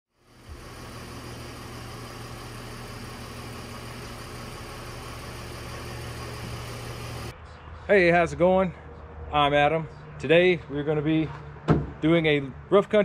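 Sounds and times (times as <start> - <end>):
vehicle engine idling: 0.1 - 7.3.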